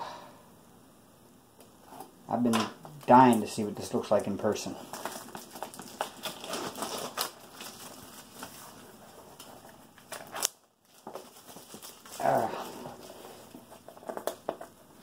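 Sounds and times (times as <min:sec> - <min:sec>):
packaging rustling and crinkling: 0:03.0 - 0:15.0.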